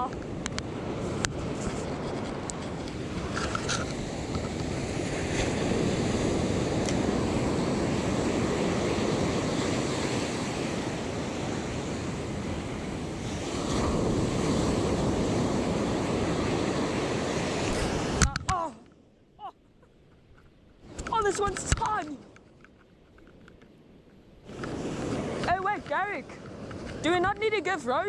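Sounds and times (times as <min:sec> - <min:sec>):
surf breaking on beach: 0:00.0 - 0:18.5, 0:24.4 - 0:27.7
wind buffeting microphone: 0:00.0 - 0:18.7, 0:20.0 - 0:28.0.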